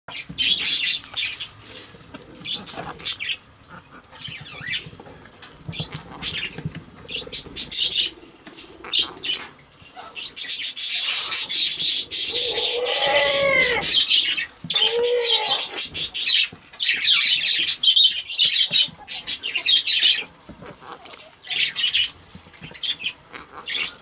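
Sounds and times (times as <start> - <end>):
parrot preening clicks and scratches: 18.8 - 23.7.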